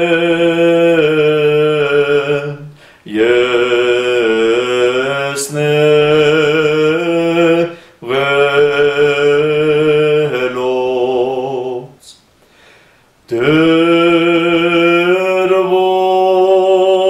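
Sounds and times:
man chanting a hymn: 0.0s - 12.2s, 13.3s - 17.0s
man breathing in: 2.7s - 3.1s, 7.7s - 8.0s, 12.4s - 13.2s.

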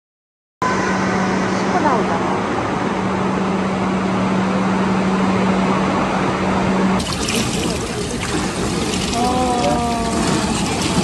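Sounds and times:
echoing pool hall hum: 0.6s - 11.0s
churning water bubbling: 7.0s - 11.0s.

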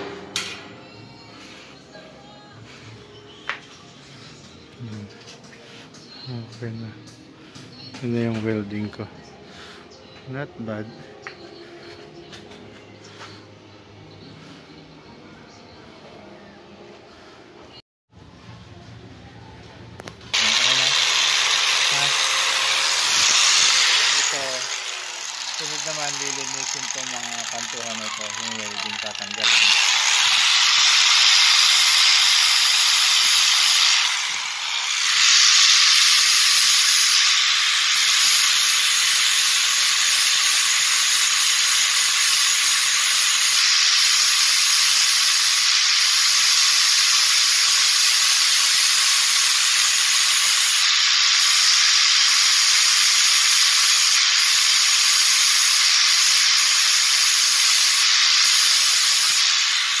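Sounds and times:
angle grinder grinding metal: 20.3s - 60.0s.

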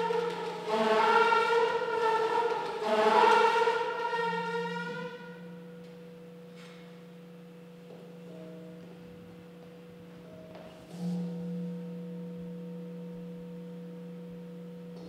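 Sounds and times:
sustained pitched tone: 0.0s - 6.3s.

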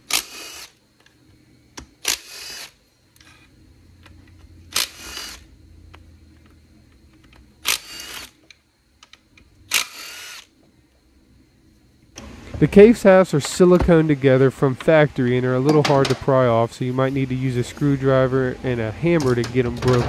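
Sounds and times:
cordless power tool spinning bolts: 0.0s - 0.8s, 2.0s - 3.4s, 4.7s - 5.4s, 7.6s - 8.4s, 9.7s - 10.5s.

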